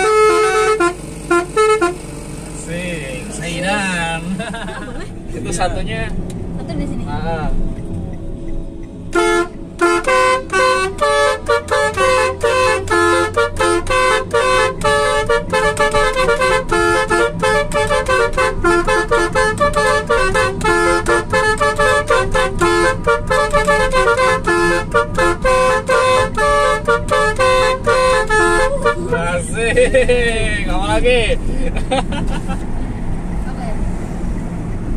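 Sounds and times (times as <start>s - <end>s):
musical air horn playing melody: 0.0s - 2.0s, 9.1s - 29.2s.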